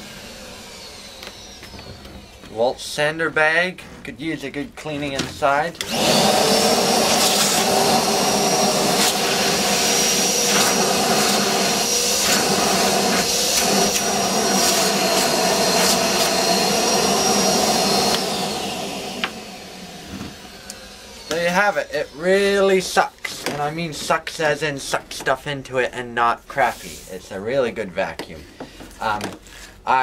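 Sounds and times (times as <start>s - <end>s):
shop vacuum motor whining: 0.0s - 3.2s, 5.6s - 23.6s.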